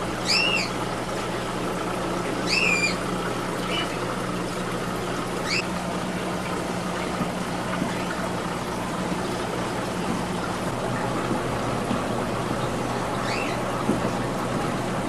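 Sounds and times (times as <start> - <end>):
aquarium pumps moving water: 0.0 - 15.0
low electrical hum: 0.0 - 15.0
rising bird chirp: 5.4 - 5.6, 13.2 - 13.6.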